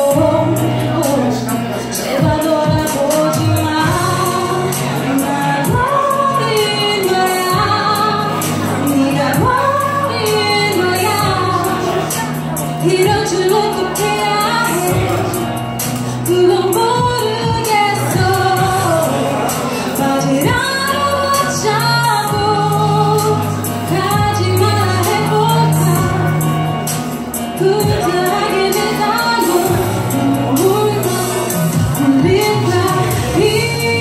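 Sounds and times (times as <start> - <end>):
backing track with steady beat: 0.0 - 34.0
woman singing into microphone: 0.0 - 34.0.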